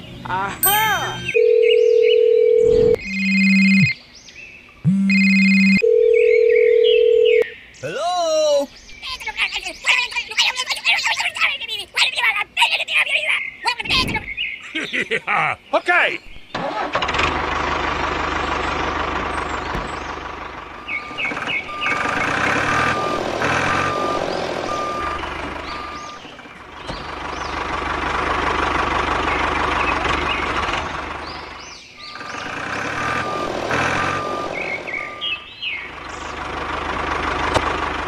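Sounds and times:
reversing alarm beeps: 0:02.6 - 0:04.0, 0:04.9 - 0:05.9, 0:20.8 - 0:26.3, 0:32.0 - 0:35.5
heavy diesel engine running: 0:16.6 - 0:38.0.

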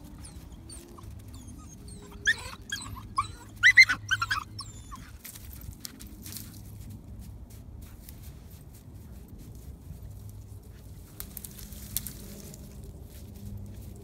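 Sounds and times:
puppy whining and yipping: 0:00.0 - 0:05.8.

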